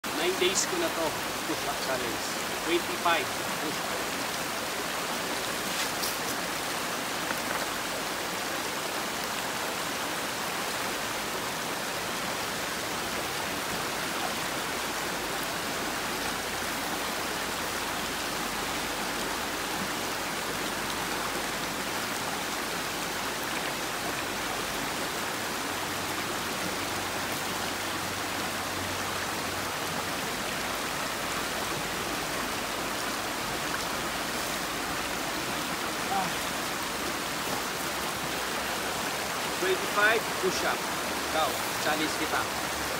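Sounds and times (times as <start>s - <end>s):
steady hiss: 0.1s - 8.6s.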